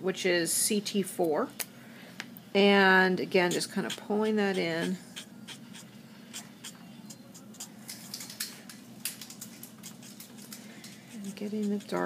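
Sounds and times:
marker nib strokes on paper: 3.5 - 7.8, 9.8 - 12.0.

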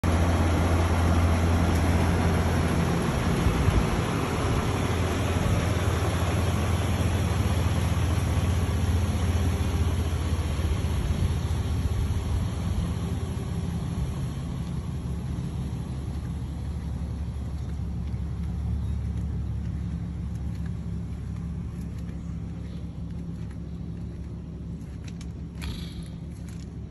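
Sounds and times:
truck engine idling: 0.0 - 26.9.

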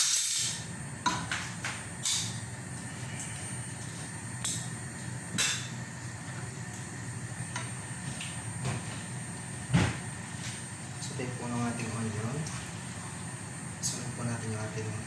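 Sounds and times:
onions sizzling in oil: 0.0 - 2.8.

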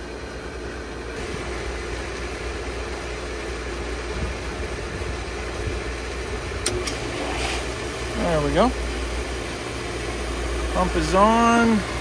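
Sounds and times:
pool pump motor humming: 0.0 - 12.0
water moving through pipes: 6.6 - 8.6.

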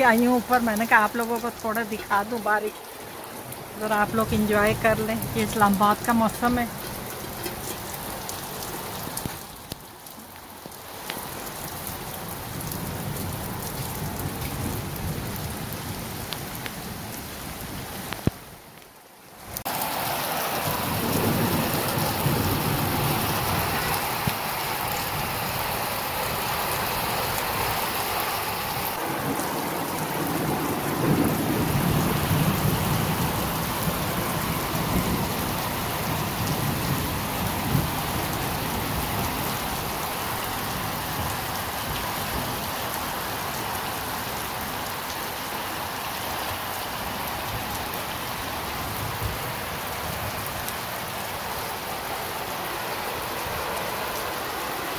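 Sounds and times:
heavy rain on concrete roof: 0.0 - 54.9.

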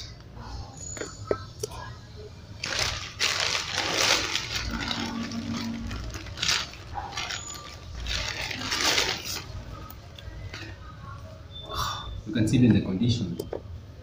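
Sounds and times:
paper and cardboard rustling: 2.6 - 9.7.

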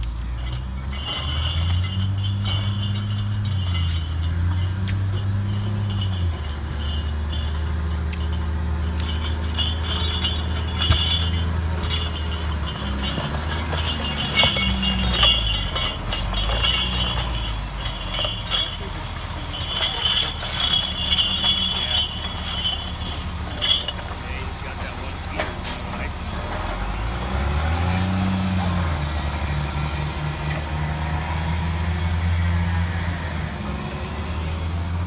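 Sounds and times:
diesel engine running: 0.0 - 35.0
sharp metal clink: 0.6 - 26.2.

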